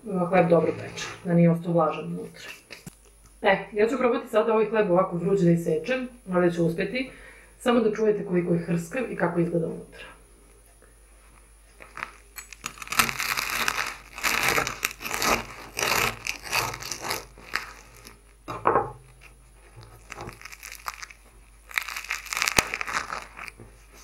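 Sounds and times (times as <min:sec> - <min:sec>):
crust crackling and crunching: 0:11.7 - 0:24.0
knife sawing through bread crust: 0:12.9 - 0:18.2.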